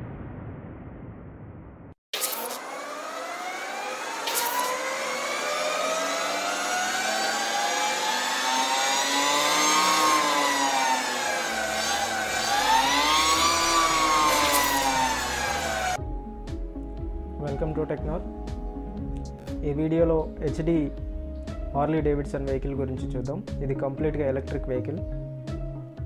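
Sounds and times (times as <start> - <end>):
electric motorcycle motor whining: 2.2 - 16.0.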